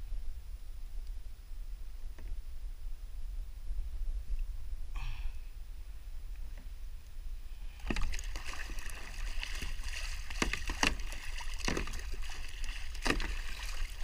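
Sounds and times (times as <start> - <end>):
water splashing against a kayak: 7.6 - 14.0
sharp splashes or knocks: 7.8 - 14.0
steady rush of water: 7.8 - 14.0.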